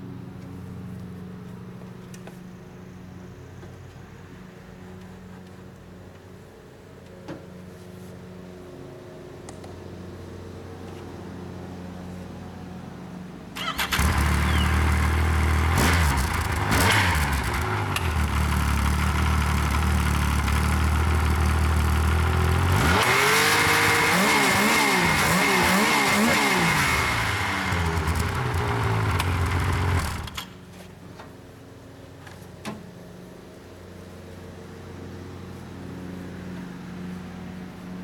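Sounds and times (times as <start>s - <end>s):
snowmobile engine idling and revving: 13.7s - 30.6s.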